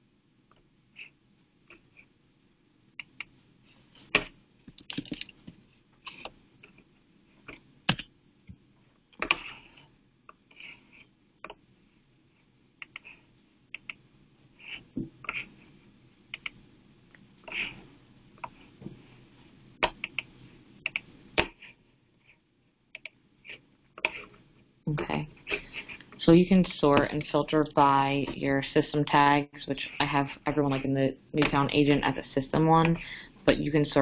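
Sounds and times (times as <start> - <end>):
keyboard typing: 4.1 - 5.4, 19.8 - 21.5.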